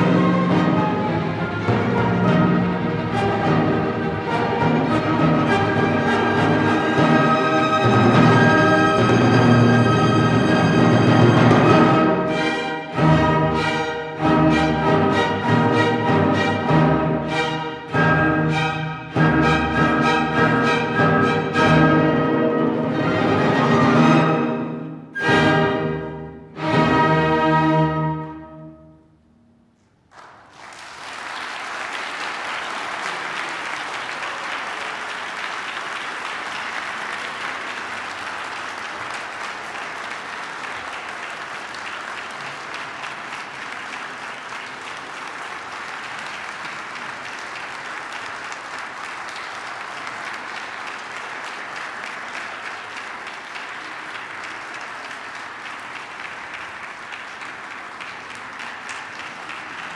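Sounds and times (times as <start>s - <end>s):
audience applauding: 30.1s - 59.9s.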